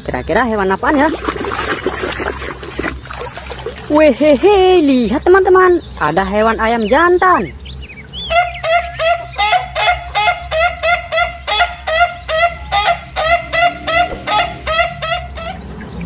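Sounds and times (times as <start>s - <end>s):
chickens clucking: 0.6s - 16.0s.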